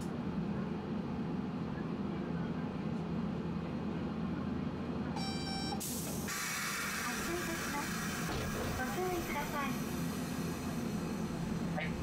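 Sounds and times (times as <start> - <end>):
streetcar rumbling: 0.0 - 5.2, 5.8 - 12.0.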